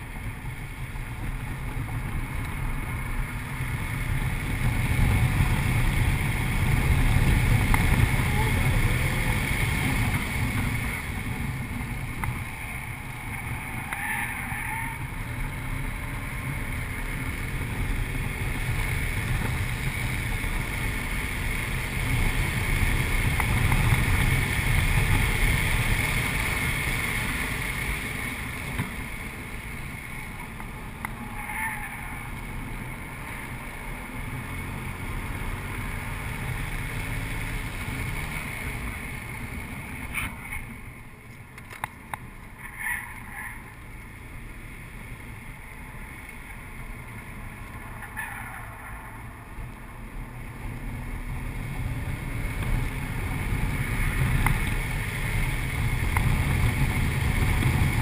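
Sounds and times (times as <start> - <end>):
car engine from inside cabin: 0.0 - 40.0
tyre and road noise: 0.0 - 58.0.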